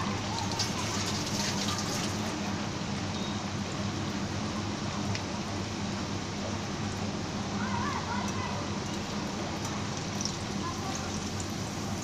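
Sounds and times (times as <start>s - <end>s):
food sizzling in hot oil: 10.0s - 12.0s.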